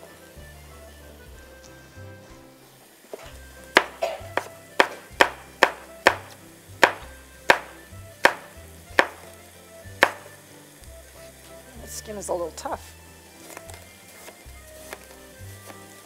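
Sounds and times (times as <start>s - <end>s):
faint background music: 0.0s - 16.0s
knife knocking on cutting board: 3.8s - 9.2s, 10.0s - 10.3s.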